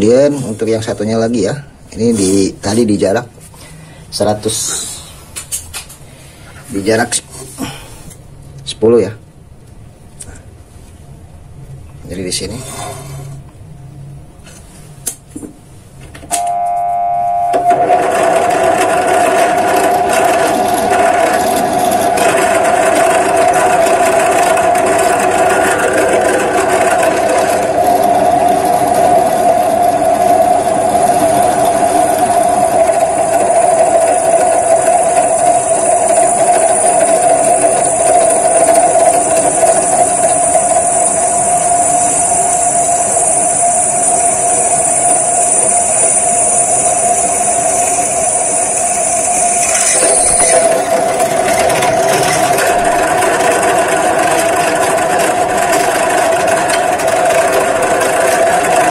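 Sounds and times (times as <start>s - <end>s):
drill bit whining in steel: 16.3s - 58.9s
drill press motor running: 17.3s - 29.6s, 31.5s - 58.9s.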